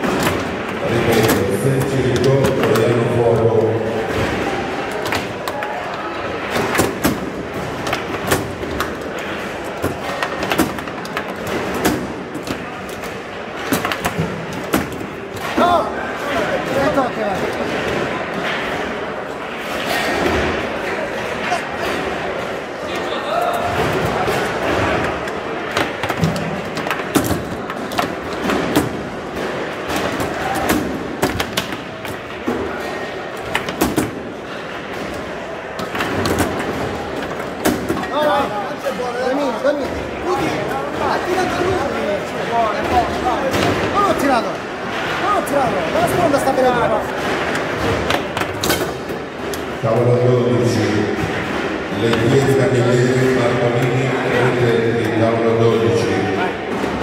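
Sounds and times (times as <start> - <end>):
foosball ball and rods clacking: 0.0 - 3.5, 6.3 - 19.0, 19.6 - 38.4, 42.8 - 49.9, 50.7 - 53.6
hall background noise: 0.0 - 57.0.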